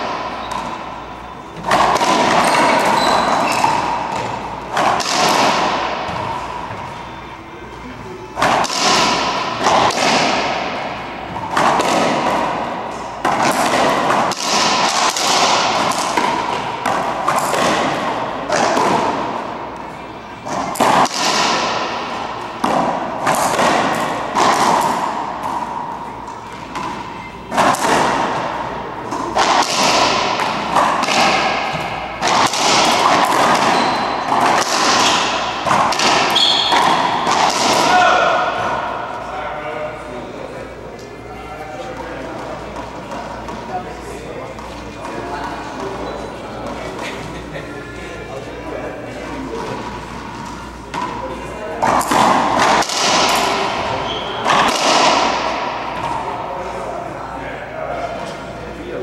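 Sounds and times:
racquetball hits echoing in court: 0.0 - 40.4, 41.8 - 47.3, 49.1 - 57.1.

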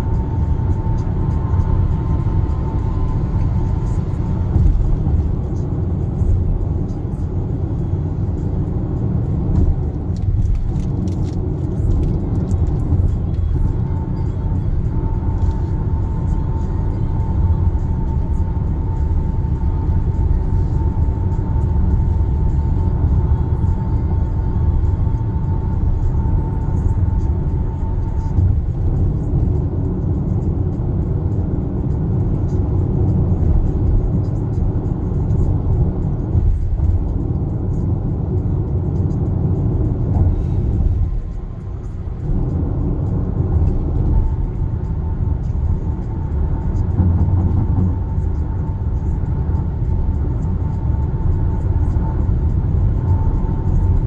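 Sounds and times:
road and tyre rumble in car: 0.0 - 54.0.

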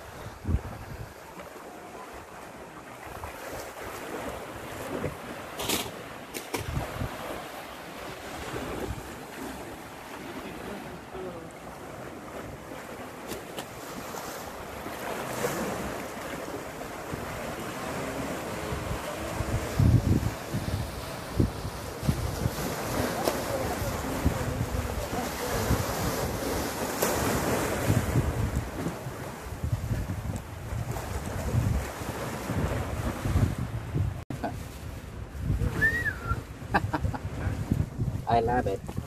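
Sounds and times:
wind buffeting microphone: 0.0 - 1.4, 6.5 - 7.5, 8.2 - 10.0, 13.8 - 39.0
small waves on rocky shore: 0.0 - 39.0.

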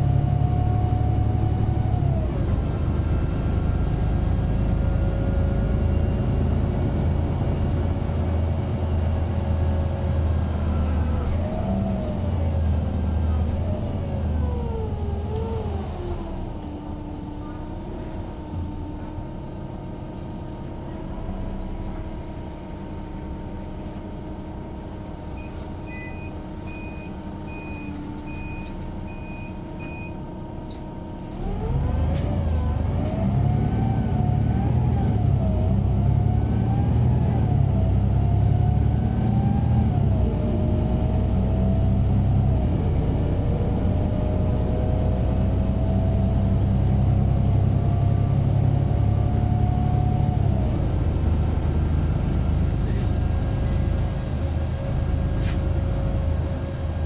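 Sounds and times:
bus diesel engine: 0.0 - 57.0
short beeps: 25.4 - 30.2.

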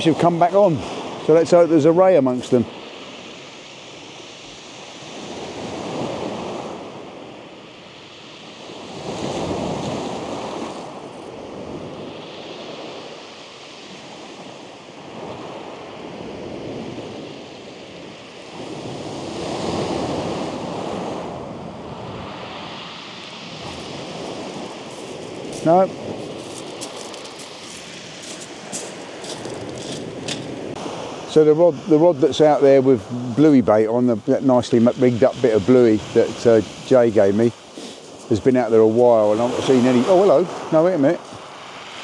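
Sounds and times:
waves breaking on shingle: 23.6 - 30.8.

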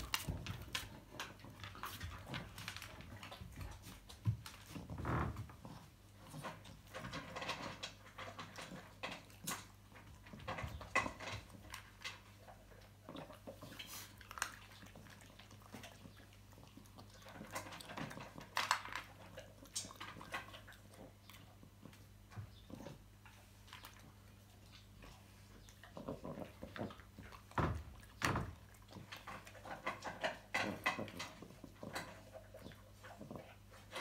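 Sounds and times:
dog eating kibble: 0.0 - 4.9, 5.6 - 34.0
kibble rattling in a metal bowl: 6.3 - 12.4.

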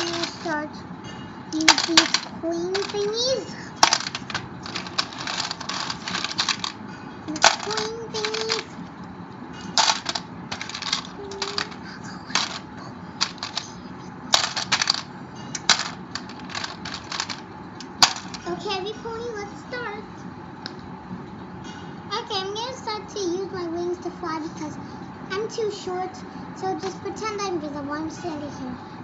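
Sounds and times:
plastic discs clattering into grid: 0.0 - 0.6, 1.6 - 3.2, 3.8 - 8.7, 9.8 - 12.6, 13.2 - 13.7, 14.3 - 18.4.

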